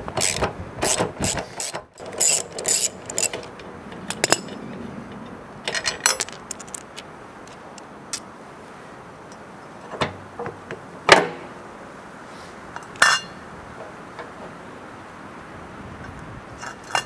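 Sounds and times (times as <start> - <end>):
metal parts and tools clanking: 0.2 - 7.7, 12.8 - 13.4, 16.6 - 17.0
ringing metal clink: 5.7 - 7.1.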